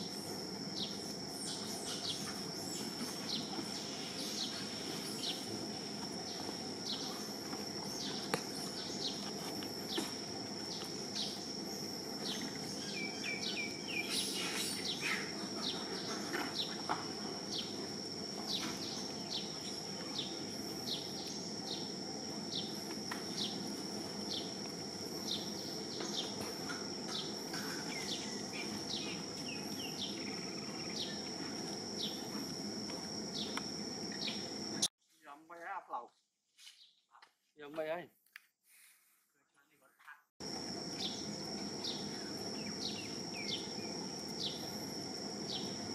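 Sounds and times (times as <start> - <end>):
low background hum: 0.0 - 34.9, 40.4 - 45.9
high insect drone: 0.0 - 35.9, 40.4 - 45.9
bird calls: 0.8 - 5.6, 6.2 - 23.7, 25.2 - 31.3.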